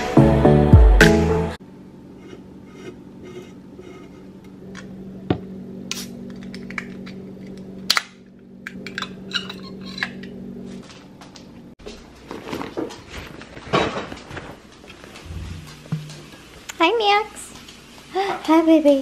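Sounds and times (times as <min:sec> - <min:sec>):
low steady hum: 0:01.6 - 0:11.8
rustling and handling bumps: 0:10.7 - 0:16.4.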